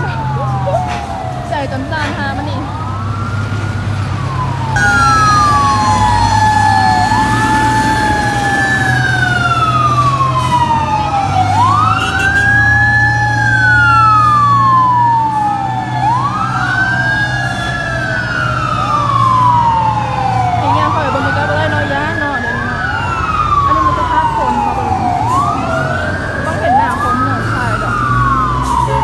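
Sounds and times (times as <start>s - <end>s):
fire engine sirens wailing: 0.0s - 29.0s
low engine drone: 4.8s - 9.9s.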